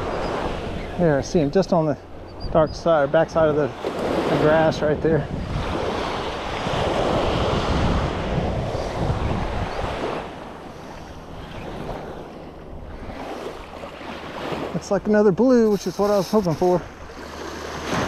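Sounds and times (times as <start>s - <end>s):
wind buffeting microphone: 0.0s - 14.8s
surf waves washing onto beach: 3.2s - 18.0s.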